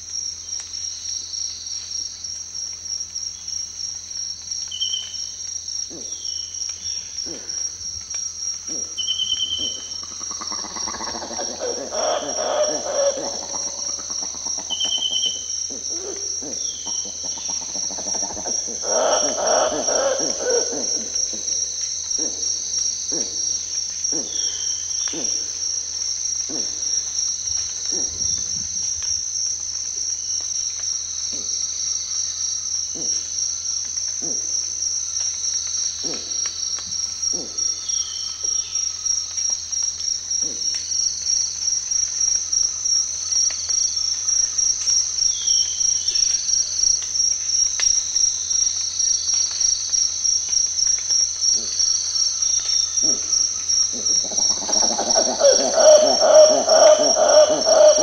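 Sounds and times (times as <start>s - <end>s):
cicada chorus buzzing: 0.0s - 58.0s
bird calls: 8.7s - 21.6s, 53.9s - 58.0s
monkey calling low notes: 8.7s - 21.6s, 22.2s - 23.4s, 53.0s - 58.0s.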